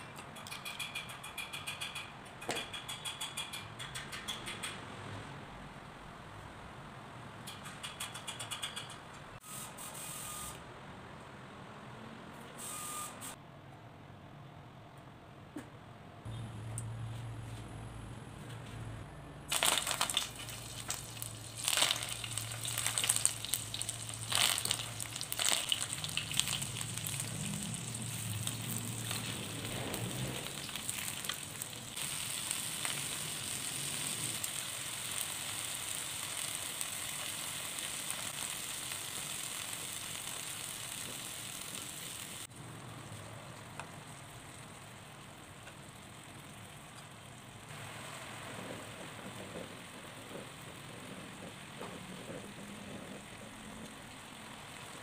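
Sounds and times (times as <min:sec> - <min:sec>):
food sizzling in oil: 0:19.5 - 0:42.5.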